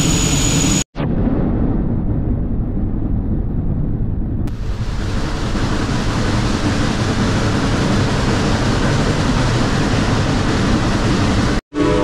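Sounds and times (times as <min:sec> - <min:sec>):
steam locomotive rushing steam: 0:04.5 - 0:12.0.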